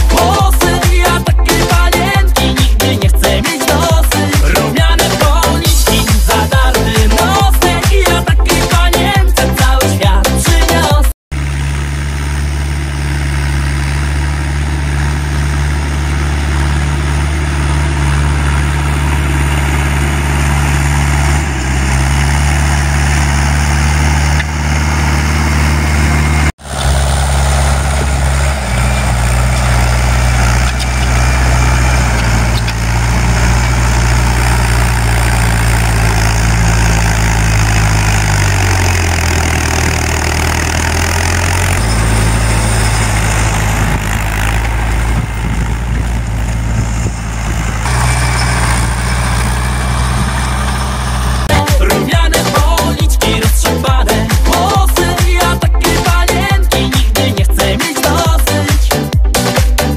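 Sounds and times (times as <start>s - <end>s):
tractor diesel engine under load: 0.0s - 59.9s.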